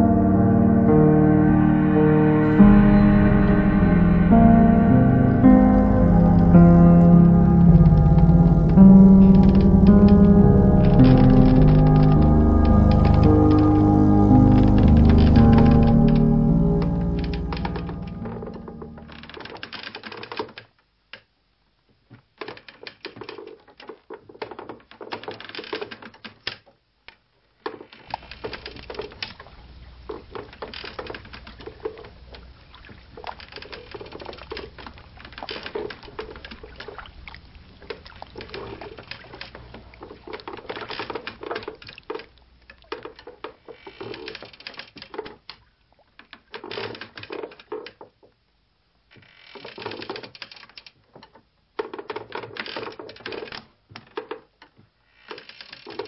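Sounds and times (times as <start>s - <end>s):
low steady hum: 0.0s - 19.2s
dense irregular clicking and crackling: 7.5s - 21.3s, 22.1s - 37.0s, 37.8s - 48.3s, 49.2s - 56.0s.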